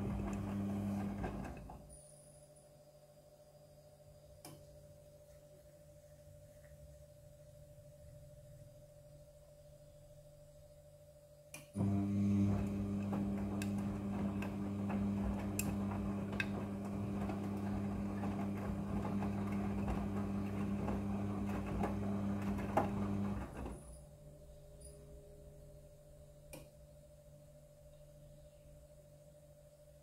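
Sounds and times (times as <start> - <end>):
washing machine tumbling: 0.0 - 1.9, 11.8 - 24.0.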